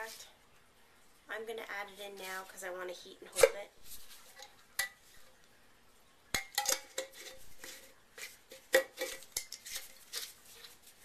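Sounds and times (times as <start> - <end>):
glass jar clinking: 6.4 - 7.6.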